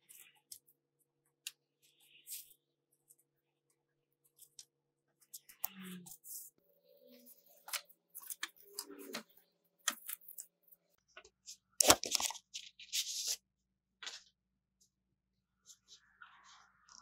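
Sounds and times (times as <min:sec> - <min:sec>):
paper and packaging crinkling: 0:11.4 - 0:13.4.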